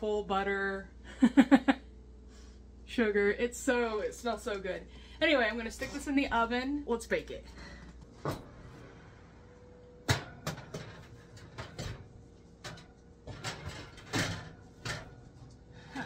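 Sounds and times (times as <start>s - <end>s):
oven door opening: 10.0s - 15.7s
metal pan clanking on oven rack: 10.1s - 15.3s
metal rattling against rack: 10.1s - 15.5s.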